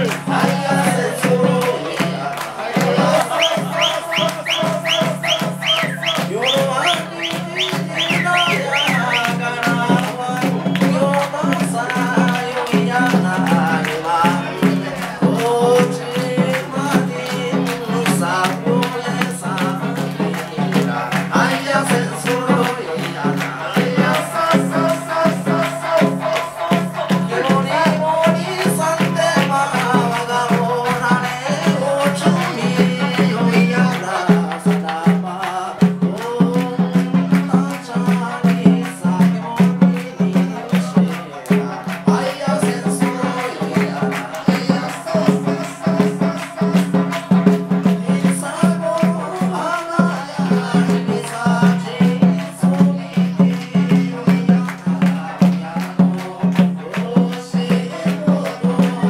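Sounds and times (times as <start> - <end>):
folk band playing dance tune: 0.0 - 59.0
person singing: 0.0 - 59.0
quick rattling beat: 0.0 - 59.0.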